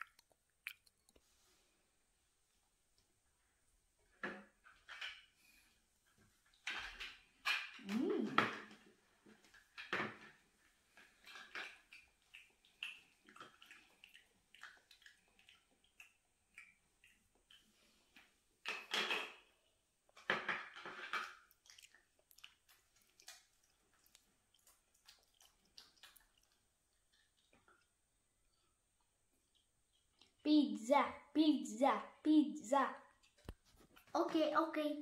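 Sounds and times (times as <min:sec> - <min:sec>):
child's mouth sounds: 0:07.8 - 0:08.8.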